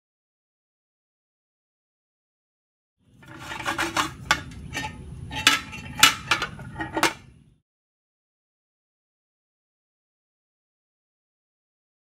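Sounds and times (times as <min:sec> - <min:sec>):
metal scraping: 0:03.1 - 0:07.4.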